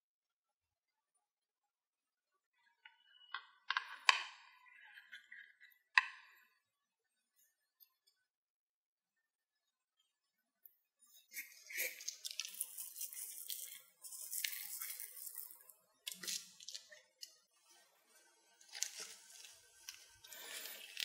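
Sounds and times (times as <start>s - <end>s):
crinkling and rustling: 11.6s - 17.4s, 18.6s - 21.0s.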